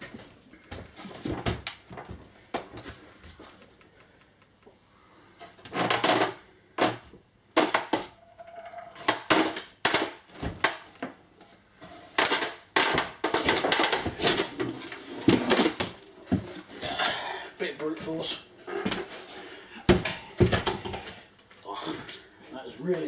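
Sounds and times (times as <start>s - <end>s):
wooden shelves knocking and scraping: 11.9s - 16.8s, 18.6s - 21.3s.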